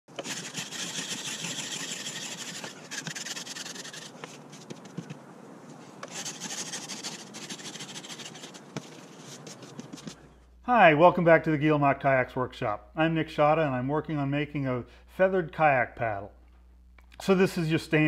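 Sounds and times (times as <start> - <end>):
ice scraper rasping on windshield: 0.1 - 5.2, 6.0 - 10.2.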